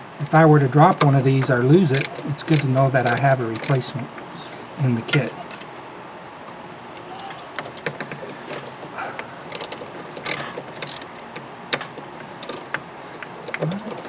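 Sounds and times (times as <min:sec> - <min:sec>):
hand ratchet clicking: 0:01.9 - 0:03.8, 0:09.5 - 0:11.2, 0:12.4 - 0:12.8, 0:13.6 - 0:14.0.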